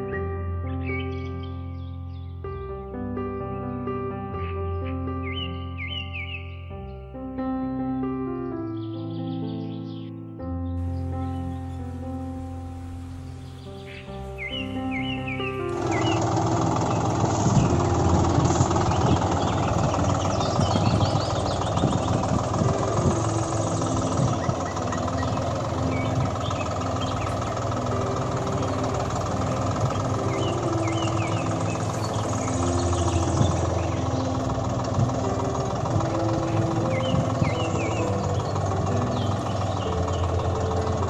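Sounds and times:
tractor engine running: 0:10.8 - 0:41.0.

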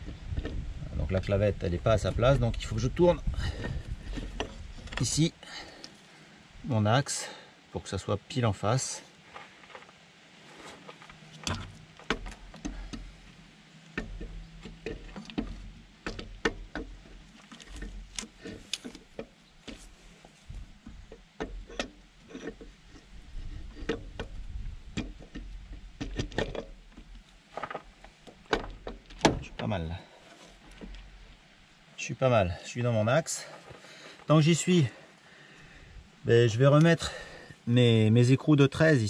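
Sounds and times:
metal clicks and knocks: 0:11.0 - 0:13.2, 0:13.9 - 0:19.8, 0:20.8 - 0:29.7.

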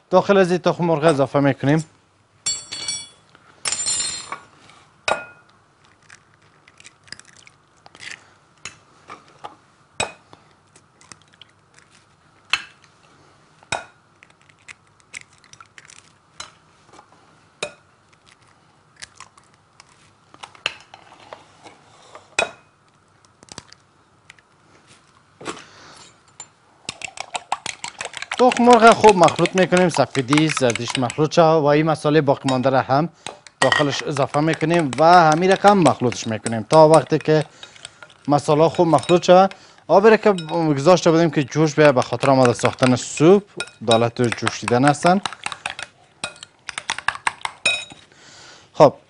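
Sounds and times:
ringing clinks of glassware: 0:02.5 - 0:04.3
eggs cracking on glass bowl: 0:05.4 - 0:08.8, 0:10.8 - 0:12.8, 0:13.7 - 0:16.6, 0:17.6 - 0:20.8, 0:22.9 - 0:24.5, 0:26.4 - 0:31.5, 0:32.4 - 0:48.0.

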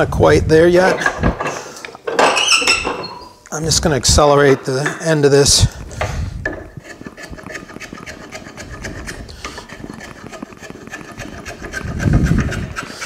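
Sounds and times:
spokeshave scraping wood: 0:05.0 - 0:13.0.

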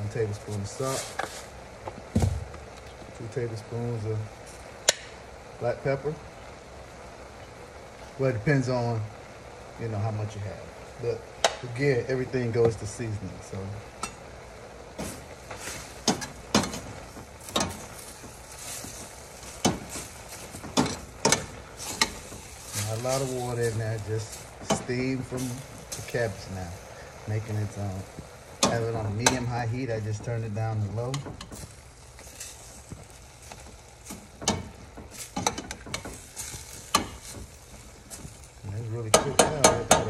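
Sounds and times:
steady steam hiss: 0:00.0 - 0:40.0
utensil stirring cabbage in pot: 0:14.9 - 0:40.0
utensil knocking against pot: 0:39.1 - 0:40.0.

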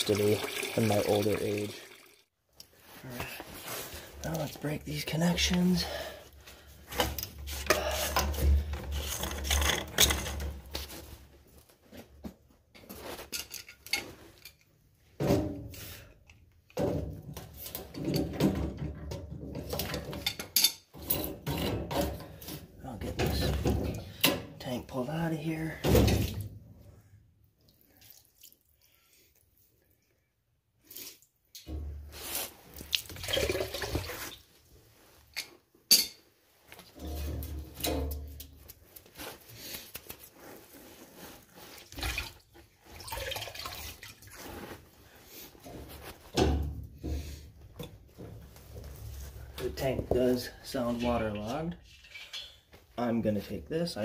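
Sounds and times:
water trickling and dripping: 0:00.0 - 0:02.2, 0:43.0 - 0:44.4.

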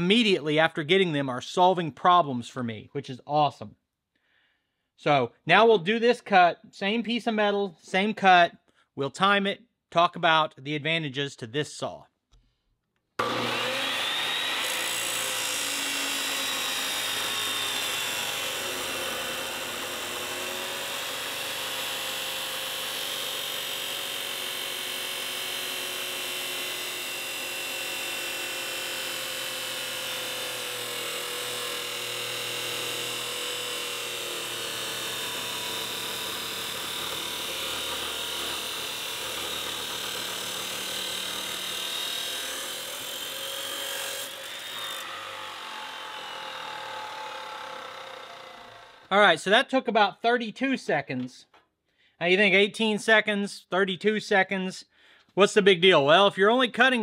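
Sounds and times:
chop saw cutting steel: 0:13.2 - 0:49.1.

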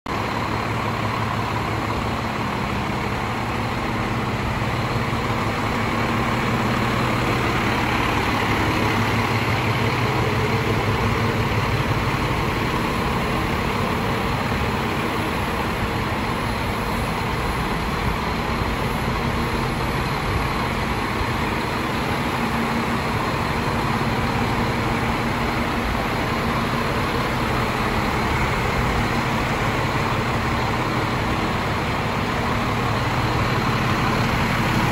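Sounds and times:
diesel truck engine idling: 0:00.1 - 0:34.9.

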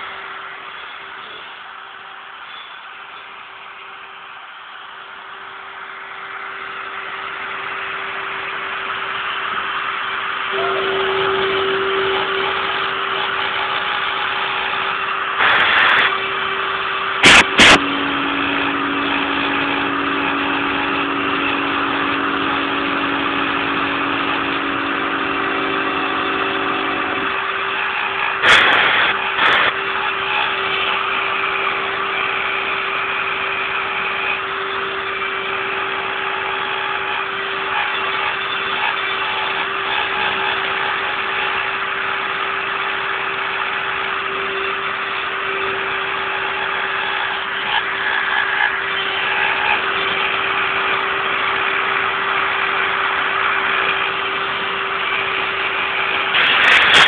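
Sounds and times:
low steady hum: 0:00.0 - 0:39.8
router spindle whining: 0:00.0 - 0:57.0
hiss of metal cutting: 0:10.5 - 0:33.8, 0:56.2 - 0:57.0.

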